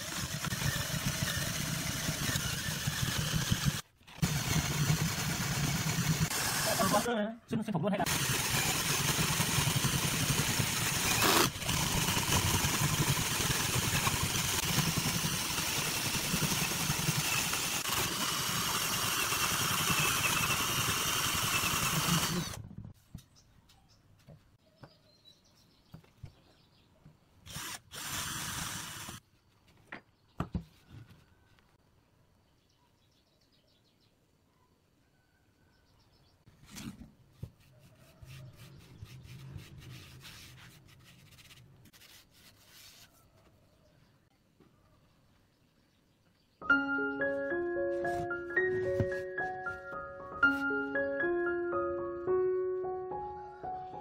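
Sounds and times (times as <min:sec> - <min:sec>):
power drill boring into wood: 0:00.0 - 0:07.1, 0:08.0 - 0:22.6, 0:27.5 - 0:29.2.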